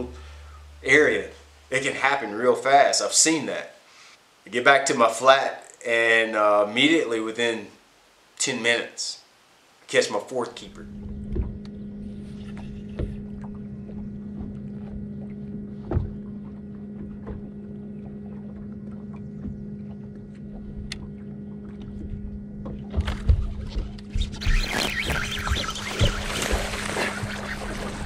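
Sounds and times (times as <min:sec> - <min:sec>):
electric boat motor humming: 0:00.0 - 0:02.2, 0:10.6 - 0:28.0
water slapping the hull: 0:10.7 - 0:28.0.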